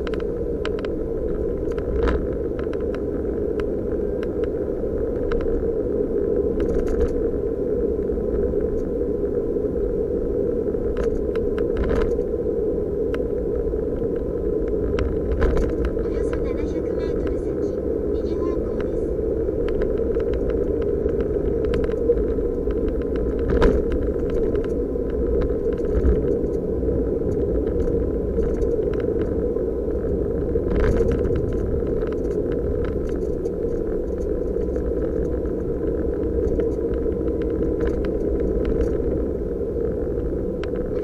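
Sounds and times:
car road and engine rumble: 0.0s - 41.0s
rattles and ticks of loose items: 19.7s - 26.6s, 27.3s - 29.3s, 30.7s - 39.1s.

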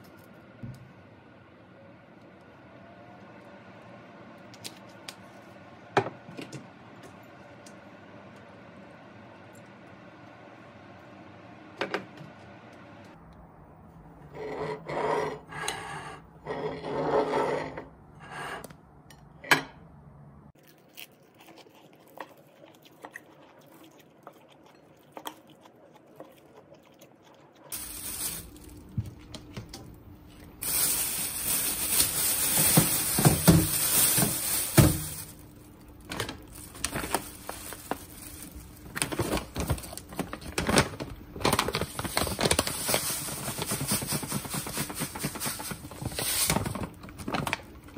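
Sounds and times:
plastic bag rustling: 27.7s - 29.4s, 30.3s - 47.9s.

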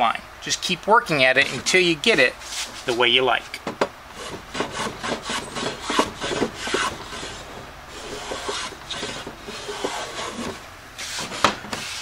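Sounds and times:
plane shaving wood: 1.3s - 2.9s, 4.1s - 12.0s.

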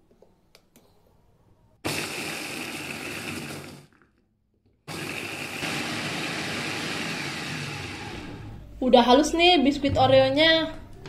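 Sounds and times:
electric food chopper grinding: 1.9s - 3.9s, 4.9s - 8.6s.

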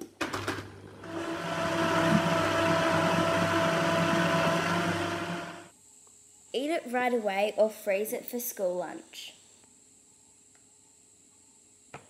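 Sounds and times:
blender motor running: 1.0s - 5.7s.

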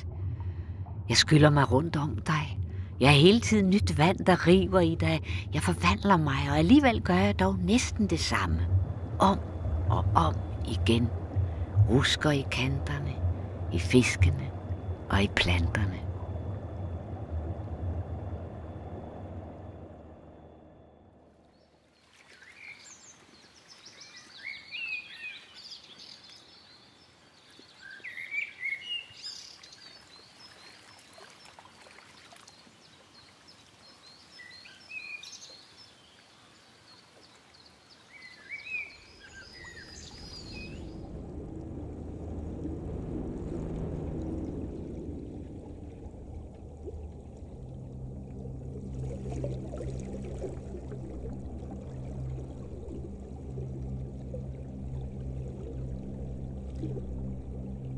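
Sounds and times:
steady low hum: 0.0s - 21.5s, 39.7s - 57.9s
underwater water rushing: 0.0s - 21.5s, 39.0s - 57.9s
birds chirping: 37.3s - 41.0s.

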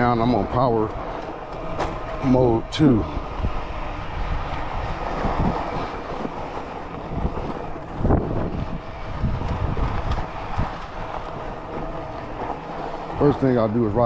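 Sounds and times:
bike tyres rolling on dirt: 0.0s - 14.0s
wind on microphone: 1.0s - 14.0s
bump thump: 1.5s - 2.2s.

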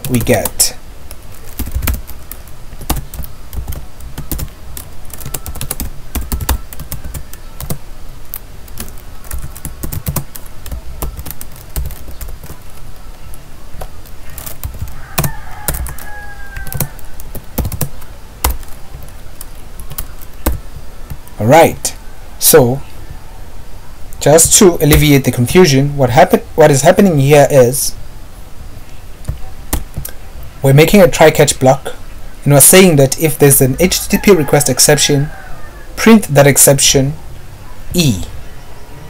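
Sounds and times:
typing on a computer keyboard: 1.4s - 7.8s, 8.7s - 13.1s, 13.8s - 21.2s.

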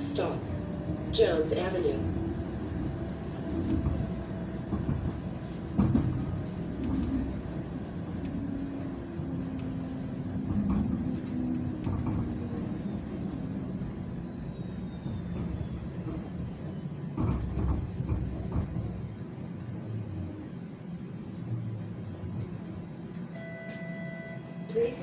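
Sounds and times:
streetcar cabin rumble: 0.0s - 25.0s
knocks: 3.6s - 7.3s, 10.4s - 12.6s, 17.1s - 19.0s.

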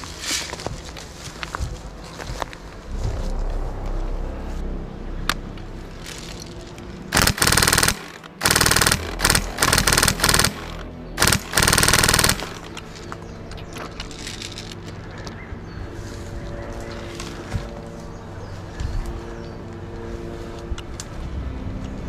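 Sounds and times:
airsoft gun full-auto bursts: 7.1s - 12.8s.

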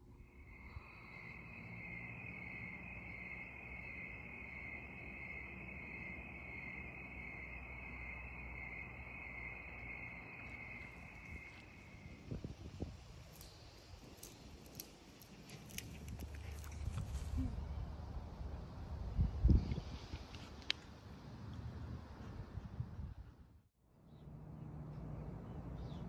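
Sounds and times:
crickets trilling: 0.0s - 17.2s
faint low rumble: 0.0s - 23.4s.

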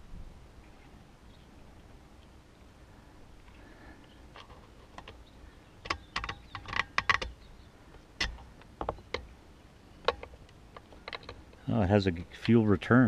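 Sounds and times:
plastic parts clicking and knocking: 4.3s - 5.2s, 5.8s - 7.4s, 8.2s - 9.3s, 10.0s - 11.6s.

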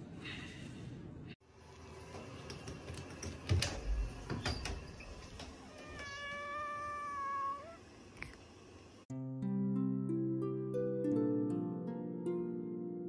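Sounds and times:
cat meowing: 5.6s - 7.9s.

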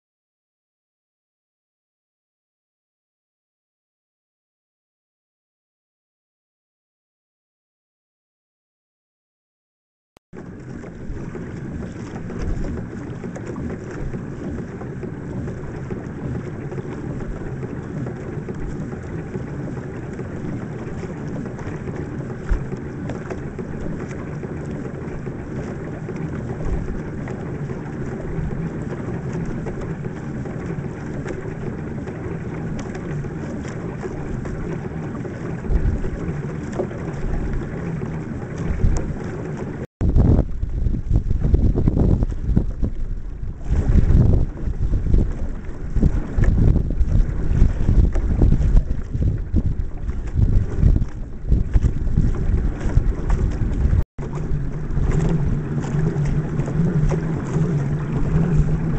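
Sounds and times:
water along hull: 10.3s - 58.9s
wind on microphone: 10.4s - 58.9s
low thumps: 40.0s - 58.9s.

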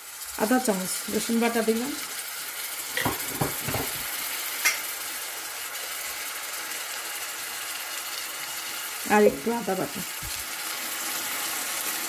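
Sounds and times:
vegetables sizzling in oil: 0.0s - 12.0s
spatula knocking against pan: 3.0s - 4.1s.

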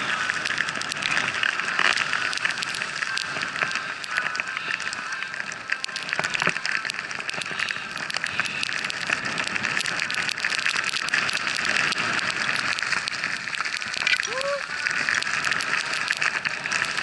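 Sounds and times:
skis hissing through snow: 11.0s - 17.0s.

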